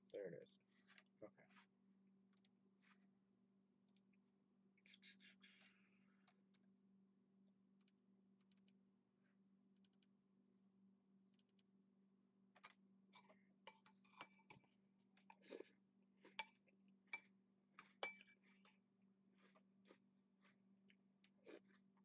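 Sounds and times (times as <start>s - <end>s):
faint mouse clicks: 7.8s - 8.8s, 9.8s - 10.1s, 11.3s - 11.7s
metal spoon clinking against bowl: 13.2s - 14.6s, 16.3s - 18.8s.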